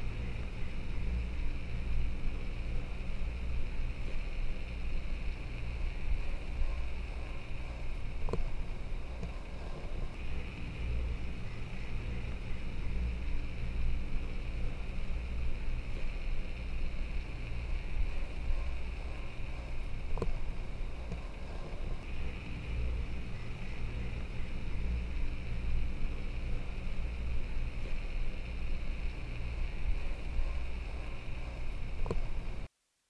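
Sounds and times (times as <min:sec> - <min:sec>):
steady hiss: 0:00.0 - 0:33.0
faint click: 0:32.0 - 0:32.3.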